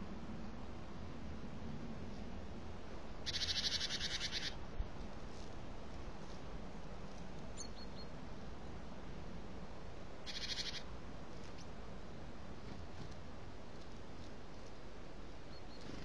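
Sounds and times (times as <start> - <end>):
bird trill: 3.2 - 4.6, 10.2 - 10.9.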